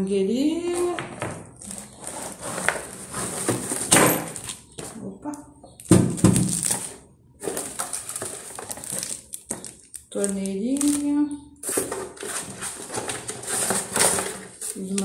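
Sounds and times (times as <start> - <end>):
cardboard and plastic rustling: 1.6 - 5.0, 5.9 - 15.0.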